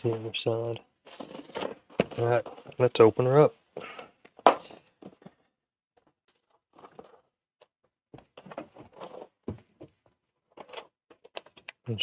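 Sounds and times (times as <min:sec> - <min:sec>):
scraping and rustling: 0:00.0 - 0:03.2, 0:06.0 - 0:12.0.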